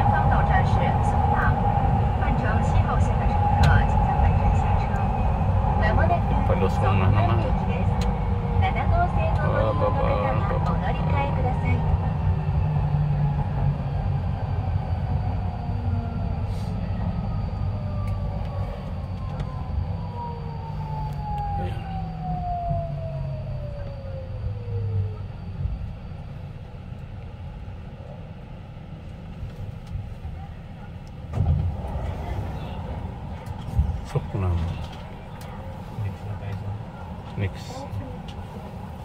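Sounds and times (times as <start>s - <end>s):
train wheels rumbling on track: 0.0s - 21.6s, 22.6s - 39.0s
train motor whine: 6.2s - 27.0s.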